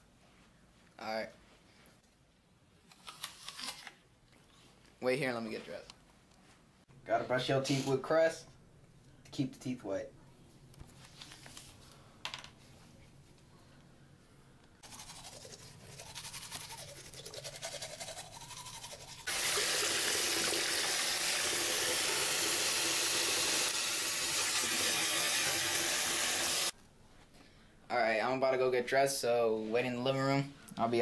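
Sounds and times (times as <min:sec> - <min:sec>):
toothbrush scrubbing teeth: 0:14.8 - 0:20.4
tap water running into basin: 0:19.3 - 0:26.7.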